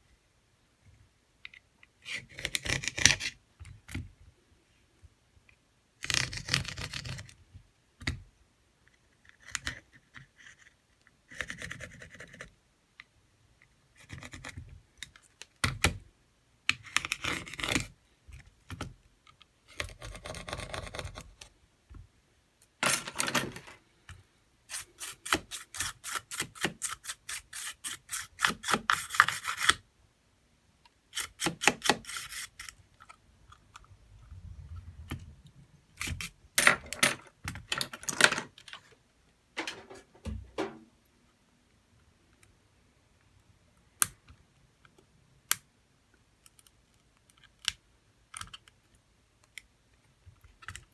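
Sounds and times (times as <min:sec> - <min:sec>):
metal tool scraping phone frame: 0:31.2 - 0:32.8.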